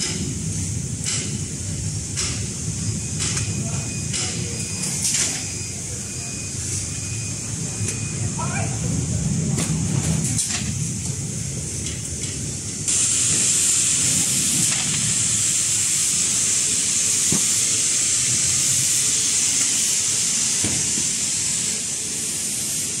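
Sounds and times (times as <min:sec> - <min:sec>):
factory machinery rumble: 0:00.0 - 0:23.0
air tool blowing hiss: 0:12.9 - 0:23.0.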